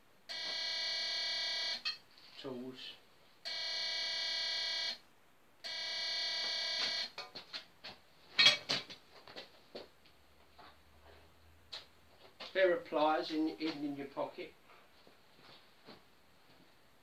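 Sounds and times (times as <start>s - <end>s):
metal detector alarm buzzing: 0.3s - 2.0s, 3.5s - 5.0s, 5.6s - 7.1s.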